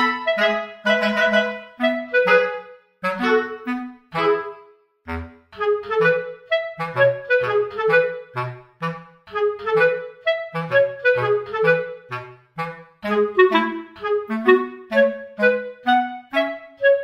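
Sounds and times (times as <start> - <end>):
bouncy woodwind tune: 0.0 - 17.0.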